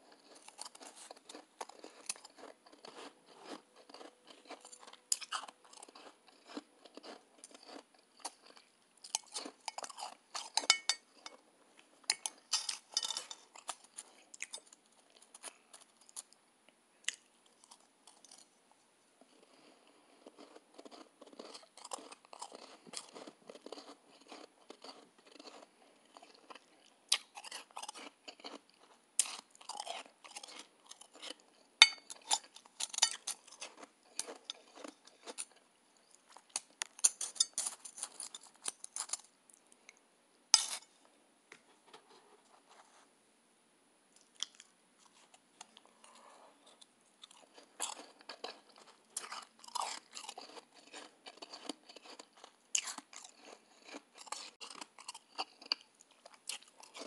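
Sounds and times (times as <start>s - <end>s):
chewing crunchy ice: 0.0s - 11.4s, 19.3s - 39.3s, 44.2s - 57.0s.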